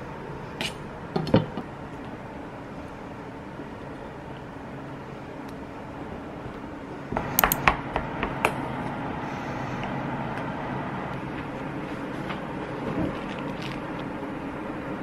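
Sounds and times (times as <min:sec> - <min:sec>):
steady mechanical hum: 0:00.0 - 0:15.0
sharp clinks and taps: 0:07.4 - 0:07.7.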